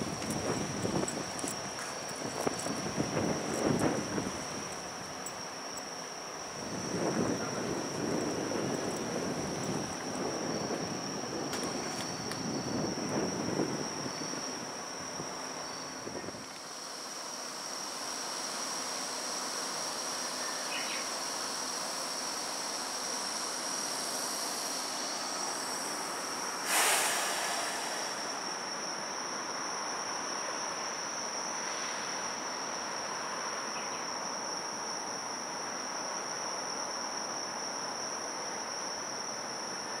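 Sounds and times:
higher insect drone: 0:00.0 - 0:40.0
insects chirring: 0:00.0 - 0:40.0
short loud hiss: 0:24.4 - 0:29.6.

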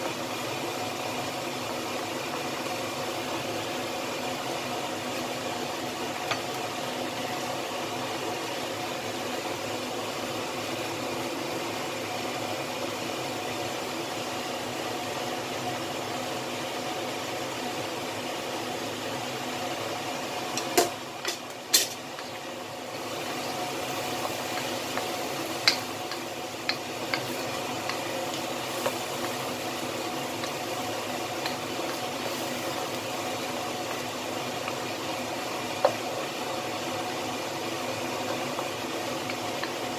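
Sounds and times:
food simmering hiss in wok: 0:00.0 - 0:39.9
wooden spatula knocking wok: 0:20.5 - 0:35.2, 0:35.8 - 0:36.4, 0:38.2 - 0:39.9.

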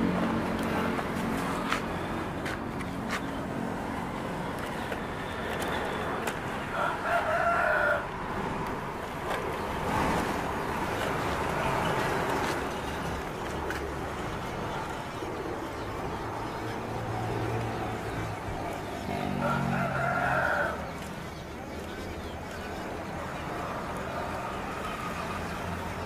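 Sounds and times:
outdoor background noise: 0:00.0 - 0:26.0
rooster crowing: 0:06.7 - 0:08.2, 0:19.2 - 0:20.9.

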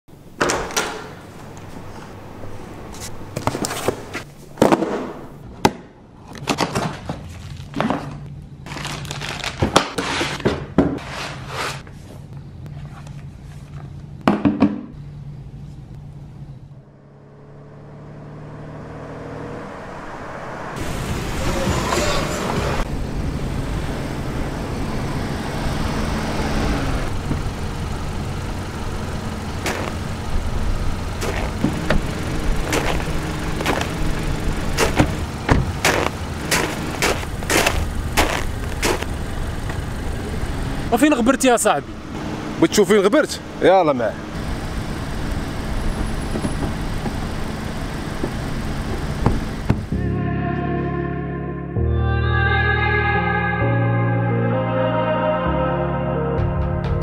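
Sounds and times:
car engine running: 0:15.9 - 0:50.0.

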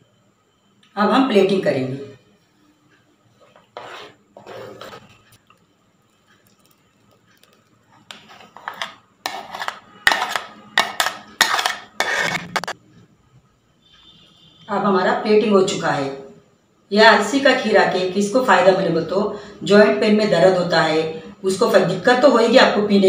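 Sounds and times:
spatula scraping a pot: 0:03.4 - 0:05.3, 0:07.4 - 0:12.8.

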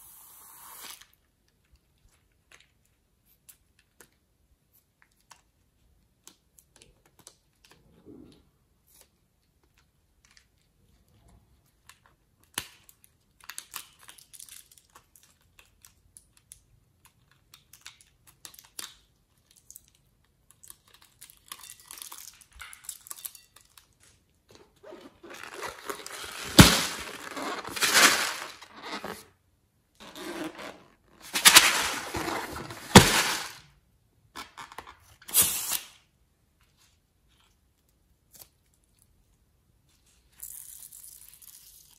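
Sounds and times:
balloons tearing and snapping: 0:24.8 - 0:29.3, 0:30.0 - 0:33.6, 0:34.4 - 0:36.0.

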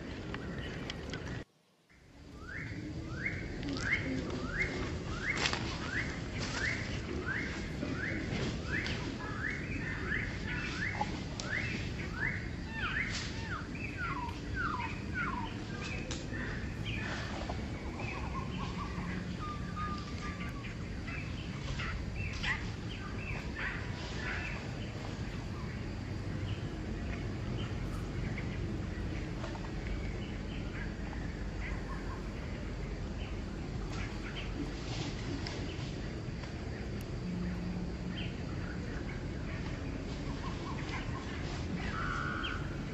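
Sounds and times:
low background hum: 0:00.0 - 0:42.9
small birds chirping: 0:00.0 - 0:42.9.

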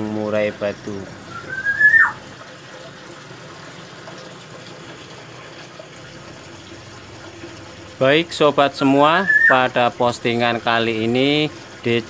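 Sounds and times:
bird whistled note: 0:01.3 - 0:02.2, 0:09.2 - 0:09.6.

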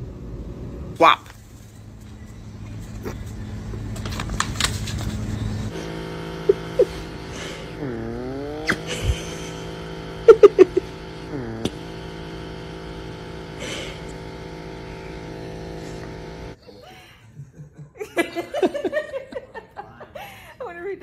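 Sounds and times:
small electric motor humming: 0:01.8 - 0:16.6.

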